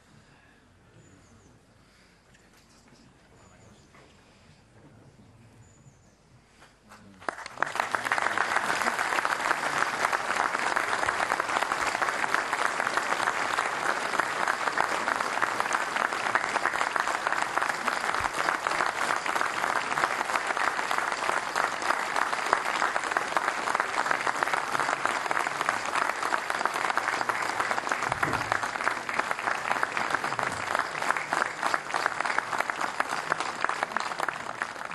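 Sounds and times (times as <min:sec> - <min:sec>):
crowd applauding: 0:07.2 - 0:34.9.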